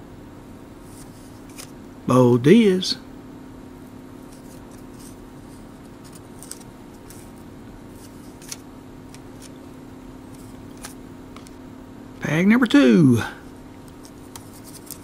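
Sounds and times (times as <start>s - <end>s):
steady low hum: 0.0s - 15.0s
trading cards ticking and rubbing: 4.2s - 9.6s, 13.8s - 15.0s.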